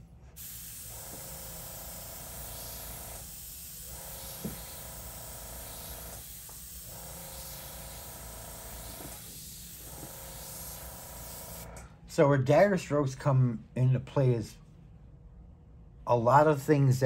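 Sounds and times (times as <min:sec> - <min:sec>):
airbrush hissing: 0:00.3 - 0:11.7.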